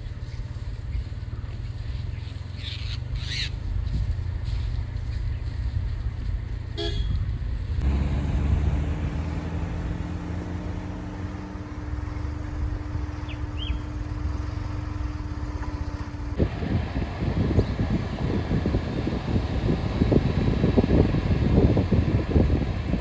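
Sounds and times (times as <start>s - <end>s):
bird chirps: 0.0s - 3.6s, 11.8s - 16.1s
car driving along road: 0.0s - 23.0s
vehicle engine idling: 0.0s - 23.0s.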